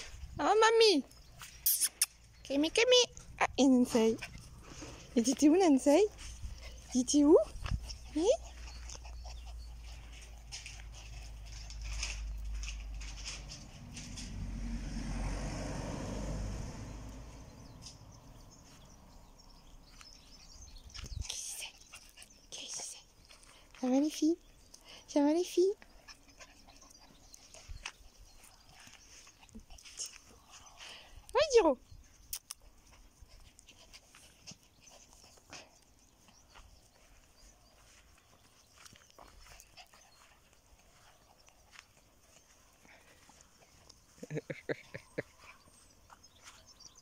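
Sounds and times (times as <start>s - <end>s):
low rumble: 12.4s - 18.6s.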